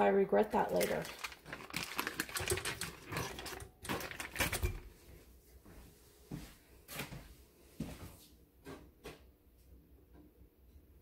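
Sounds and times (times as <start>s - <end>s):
foil wrapper crinkling: 0.5s - 4.9s.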